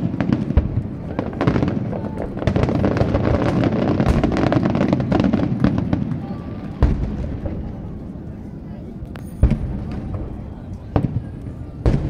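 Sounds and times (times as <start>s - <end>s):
heavy booms: 9.4s - 12.0s.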